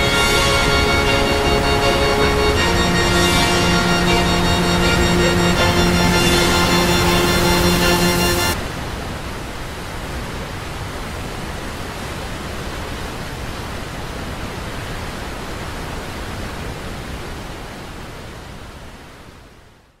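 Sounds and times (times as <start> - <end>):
river rapids rushing: 0.0 - 8.9.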